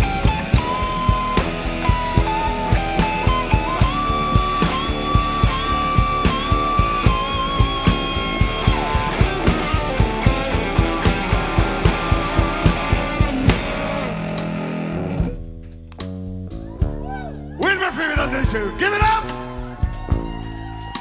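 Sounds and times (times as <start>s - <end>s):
electric guitar lead: 0.0s - 15.7s
bass: 0.0s - 21.0s
drum beat: 0.0s - 21.0s.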